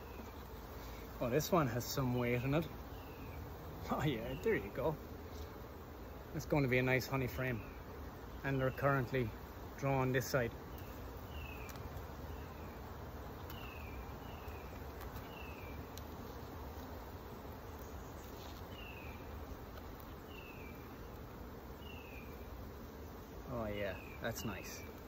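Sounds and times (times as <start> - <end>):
honeybees humming: 0.0 - 25.0
faint clicks: 15.9 - 16.1.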